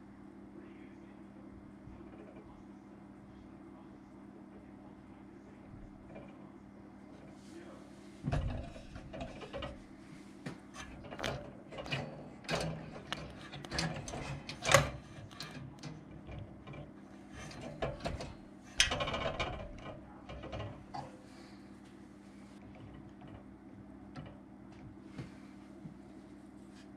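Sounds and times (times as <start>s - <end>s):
steady low hum: 0.0s - 26.9s
clicks and knocks on metal fittings: 8.2s - 9.8s, 10.4s - 21.1s, 22.6s - 23.5s, 24.1s - 24.4s.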